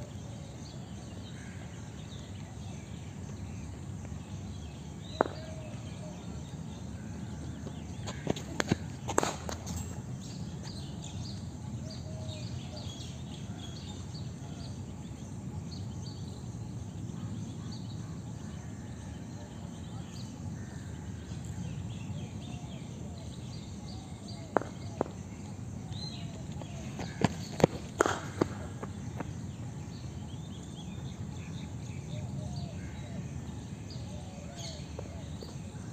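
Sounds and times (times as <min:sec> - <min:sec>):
cricket ball knocking off bat: 0:05.1 - 0:05.7, 0:07.7 - 0:09.8, 0:26.6 - 0:29.4
ball pitching on concrete: 0:05.2 - 0:05.8, 0:07.6 - 0:10.0, 0:24.5 - 0:25.2, 0:26.3 - 0:29.4.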